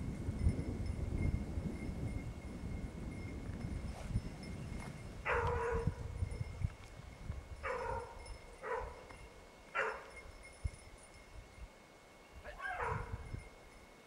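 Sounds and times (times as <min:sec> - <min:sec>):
hound baying: 0:05.3 - 0:06.0, 0:07.6 - 0:09.1, 0:09.7 - 0:10.1, 0:12.5 - 0:13.2.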